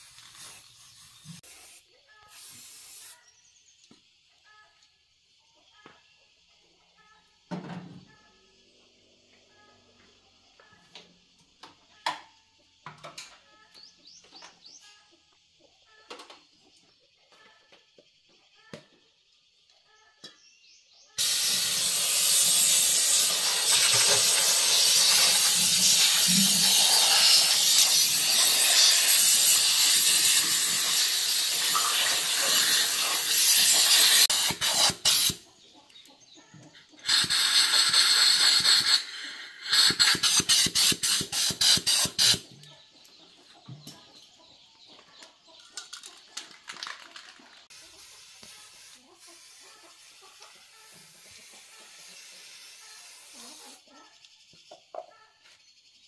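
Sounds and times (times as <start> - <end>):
compressed air blow gun hissing: 0.0 - 3.2, 21.2 - 35.4, 37.0 - 42.4, 47.7 - 53.8
short air puffs: 0.0 - 3.2, 21.2 - 35.4, 37.0 - 42.5.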